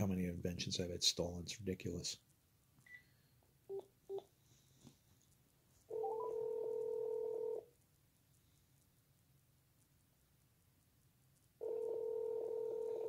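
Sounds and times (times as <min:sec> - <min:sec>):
phone beeps: 0:05.9 - 0:07.5
phone ringing tone: 0:05.9 - 0:07.6, 0:11.6 - 0:13.0.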